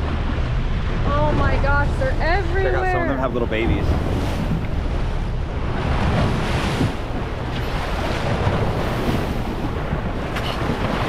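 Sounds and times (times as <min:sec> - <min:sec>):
water rushing along boat: 0:00.0 - 0:11.0
wind buffeting microphone: 0:00.0 - 0:11.0.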